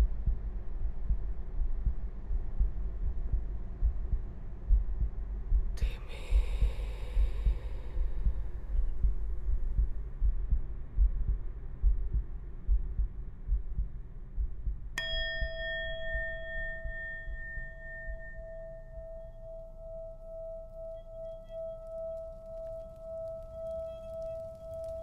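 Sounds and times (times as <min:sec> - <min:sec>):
low pulsing rumble: 0:00.0 - 0:25.0
metal strike ringing like a bell: 0:15.0 - 0:21.2.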